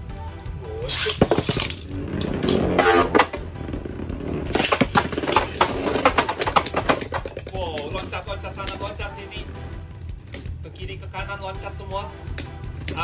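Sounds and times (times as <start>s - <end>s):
spinning tops clashing clicks: 0.9s - 3.4s.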